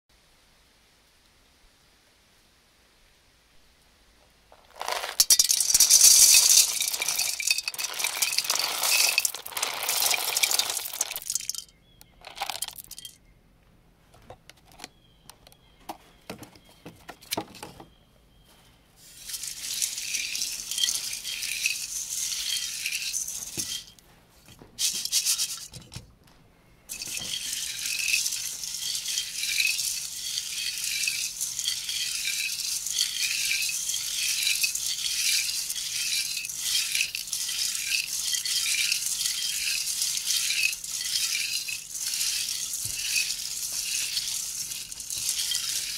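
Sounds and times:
nuts rattling in metal colander: 4.5s - 13.2s, 19.1s - 24.0s, 24.8s - 25.8s, 26.9s - 45.9s.

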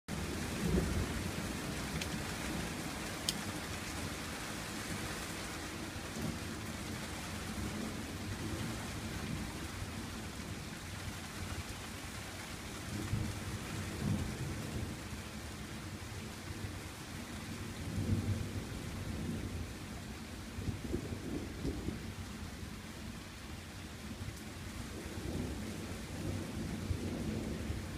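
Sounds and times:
thunder rumbling: 24.9s - 27.9s.

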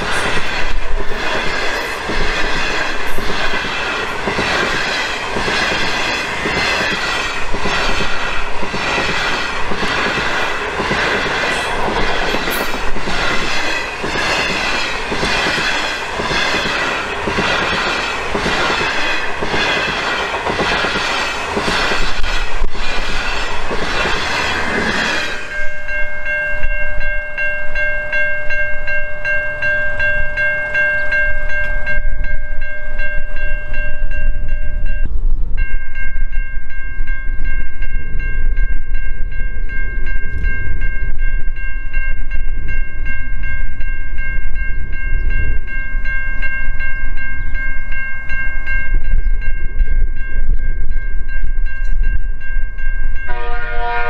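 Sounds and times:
train wheels clattering: 0.0s - 26.0s
level crossing bells ringing: 22.8s - 35.1s.

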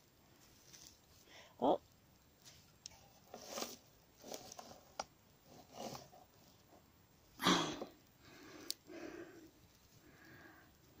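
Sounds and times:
straw rustling: 0.3s - 1.4s, 2.2s - 6.7s.

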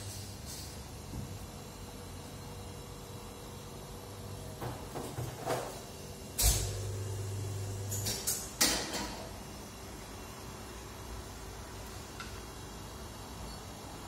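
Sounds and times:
low motor hum: 6.5s - 8.0s.

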